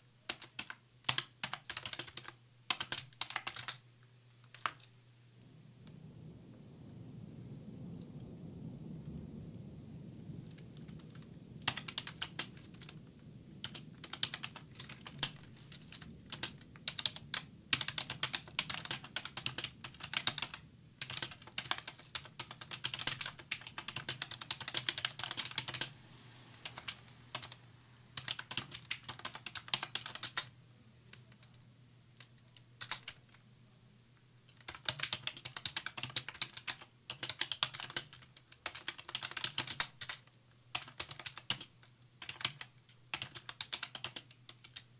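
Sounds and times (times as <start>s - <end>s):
faint low hum: 0.0s - 44.9s
typing on computer keyboard: 0.3s - 3.8s, 4.5s - 4.9s, 10.9s - 13.0s, 13.6s - 25.9s, 28.2s - 30.5s, 32.2s - 33.4s, 34.5s - 44.9s.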